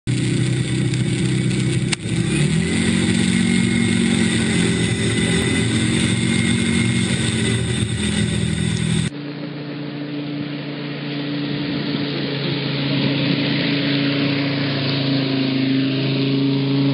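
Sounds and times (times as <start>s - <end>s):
speedboat engine running hard: 0.1s - 16.9s
click: 0.9s - 2.2s.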